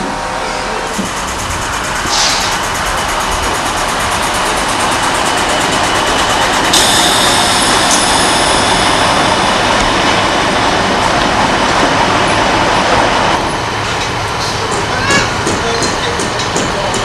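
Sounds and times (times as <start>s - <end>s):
high whine: 0.0s - 13.6s
loud machinery noise: 0.0s - 17.0s.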